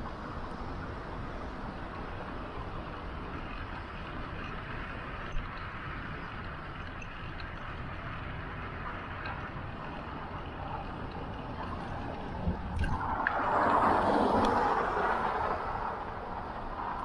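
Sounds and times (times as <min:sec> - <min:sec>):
bicycle tyres on road: 0:00.0 - 0:17.0
wind rumble on microphone: 0:00.0 - 0:17.0.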